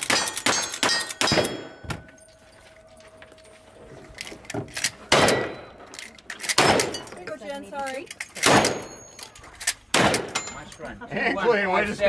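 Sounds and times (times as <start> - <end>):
lever-action rifle shots: 0.0 - 1.8, 4.7 - 7.1, 8.2 - 10.5
shotgun blasts: 0.0 - 1.8, 5.1 - 5.8, 6.6 - 7.0, 8.4 - 9.0, 9.9 - 10.4
metallic clicks of gun handling: 4.0 - 10.9.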